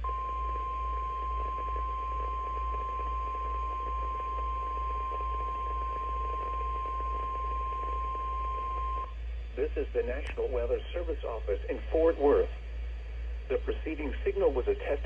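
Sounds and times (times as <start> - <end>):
steady alarm tone: 0.0 - 9.3
low hum: 0.0 - 15.0.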